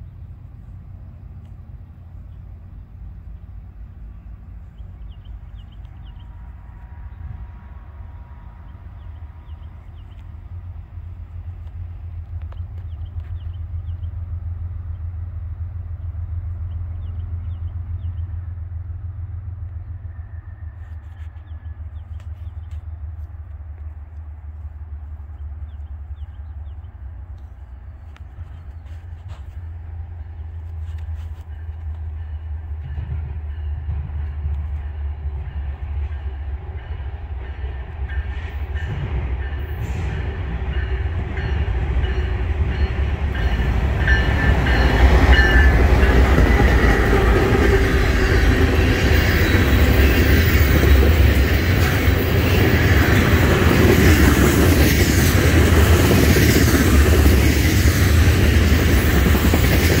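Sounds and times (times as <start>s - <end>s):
diesel locomotives passing: 0.0s - 60.0s
train wheels clattering: 30.4s - 60.0s.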